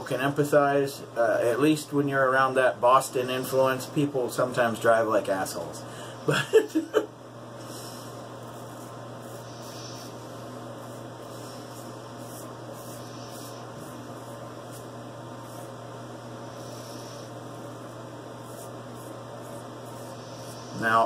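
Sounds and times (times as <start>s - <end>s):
low electrical hum: 0.0s - 21.0s
straight razor scratching stubble: 18.4s - 20.8s.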